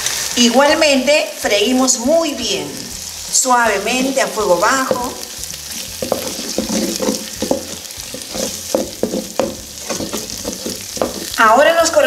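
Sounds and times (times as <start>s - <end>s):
paste sizzling in oil: 0.0s - 12.0s
wooden spoon scraping pot: 4.9s - 11.4s.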